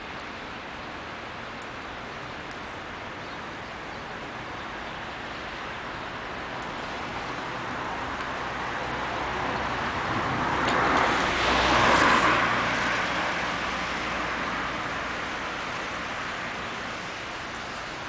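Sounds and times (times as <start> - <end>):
car tyres hissing on wet road: 4.8 - 18.0.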